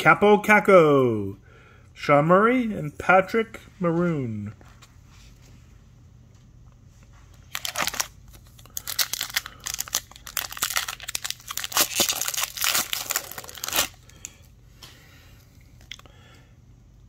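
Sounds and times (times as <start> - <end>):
plastic wrapper tearing and crinkling: 7.5 - 14.2.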